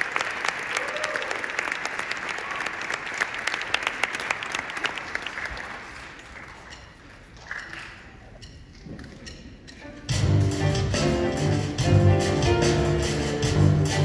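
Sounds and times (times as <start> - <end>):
audience applause: 0.0 - 6.8.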